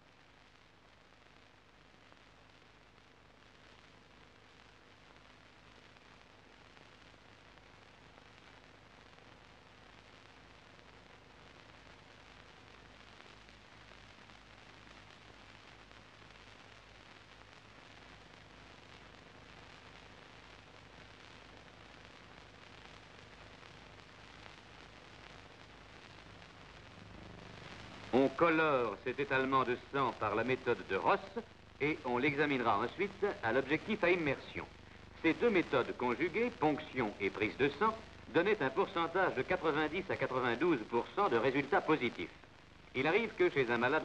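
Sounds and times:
background hiss: 0.0 - 44.0.

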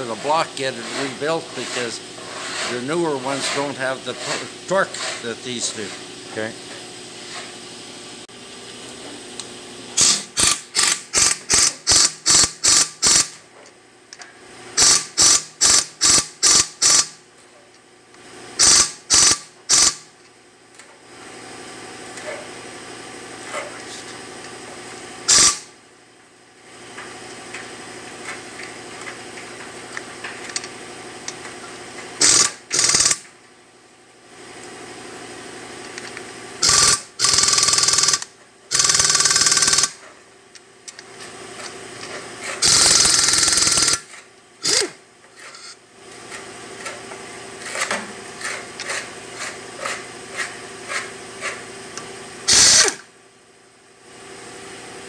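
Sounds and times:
pneumatic impact wrench hammering: 10.0 - 13.4, 14.8 - 17.2, 18.6 - 20.1, 25.2 - 25.8, 32.2 - 33.3, 36.6 - 40.0, 42.4 - 47.0, 52.4 - 53.1.

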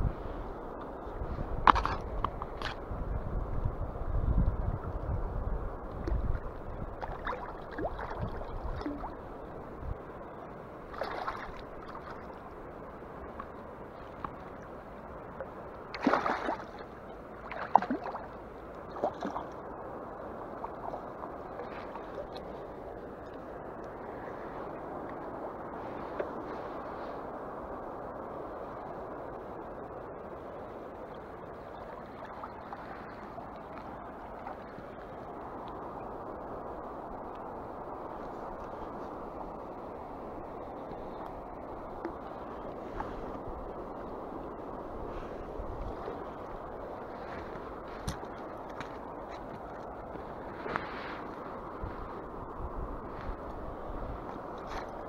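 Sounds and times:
flowing river water: 0.0 - 55.0
river current rushing: 5.2 - 29.6.

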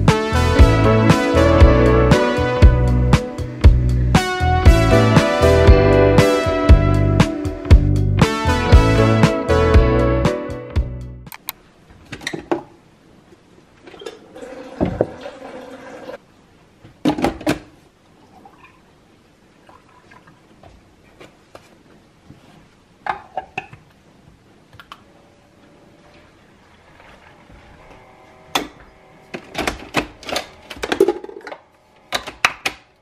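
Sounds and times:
milk pouring into jug: 13.8 - 16.2.

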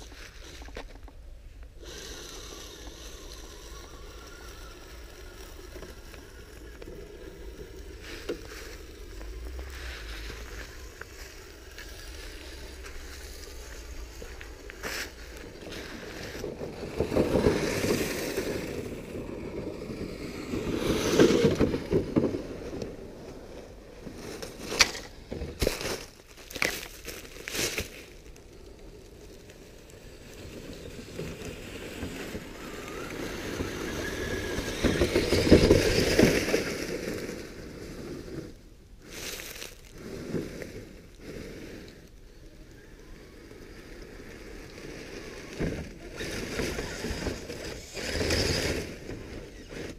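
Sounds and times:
dry leaves crunching: 1.8 - 18.6, 24.1 - 29.3, 39.0 - 40.3
sharp crackles of leaves: 1.8 - 49.9.

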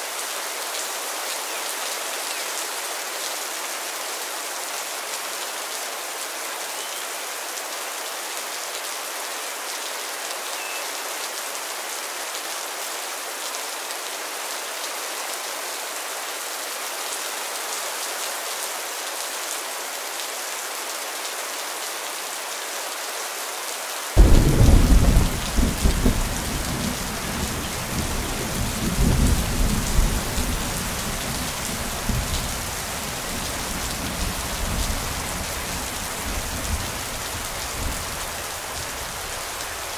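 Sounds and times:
steady rain falling: 0.0 - 39.9
thunder rumbling: 24.2 - 30.5.

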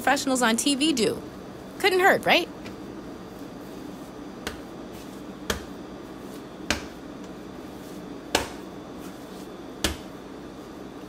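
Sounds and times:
dough slapping on countertop: 4.4 - 10.3.

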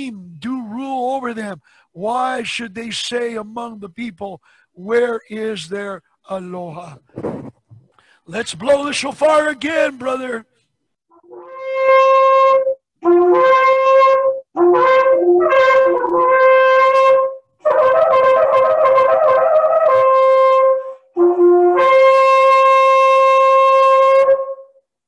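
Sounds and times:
shofar blasts: 11.2 - 24.8.

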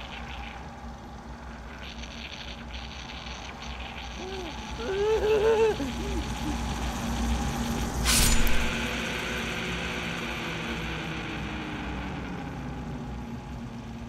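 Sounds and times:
machine rumbling: 0.0 - 14.0
harsh hissing burst: 7.9 - 8.9.

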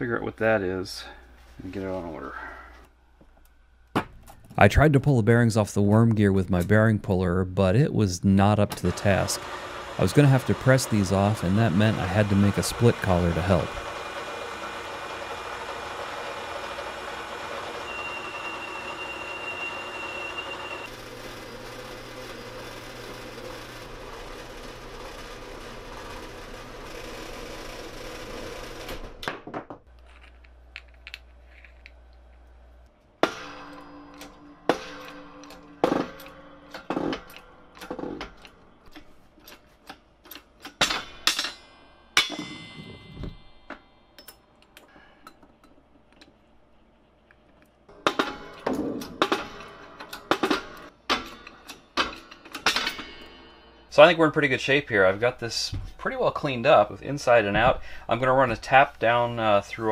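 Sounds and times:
metal lathe machining: 8.8 - 28.7
thin high whine: 17.5 - 22.6.

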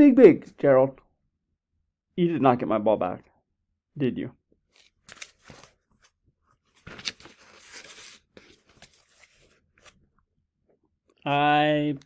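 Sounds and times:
paper page turning: 4.7 - 10.0.

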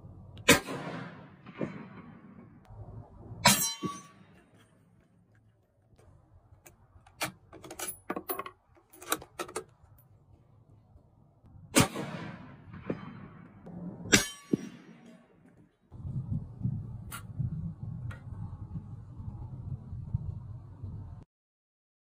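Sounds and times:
rifle shots: 0.4 - 2.6, 11.7 - 15.0.

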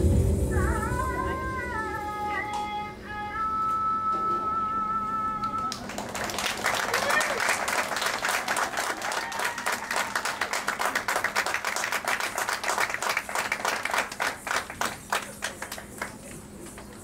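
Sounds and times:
audience clapping: 5.4 - 17.0.

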